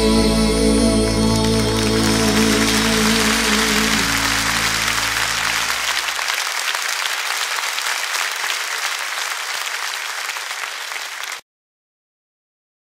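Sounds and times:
audience applauding: 0:01.3 - 0:11.4.

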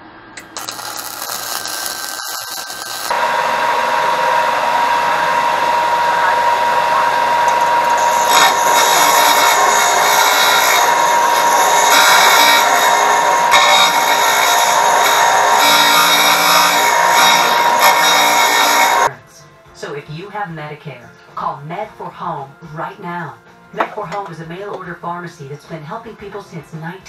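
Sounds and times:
sander whining and grinding: 0:00.4 - 0:19.1
welder arc crackling: 0:00.4 - 0:19.1.

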